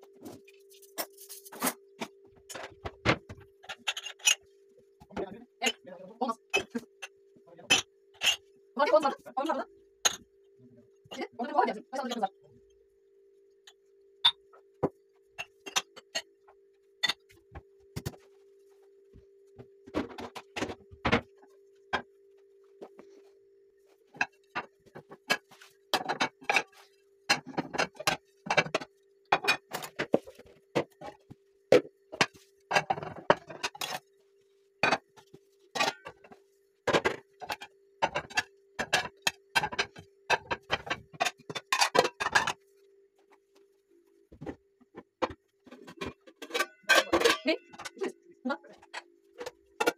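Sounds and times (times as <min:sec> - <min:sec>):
faint steady hum: 0:00.0 - 0:49.9
dishes clinking: 0:02.5 - 0:04.5, 0:06.5 - 0:08.5, 0:10.0 - 0:10.3, 0:13.7 - 0:16.4, 0:17.0 - 0:17.3, 0:24.2 - 0:34.0, 0:35.7 - 0:42.6, 0:45.2 - 0:48.0.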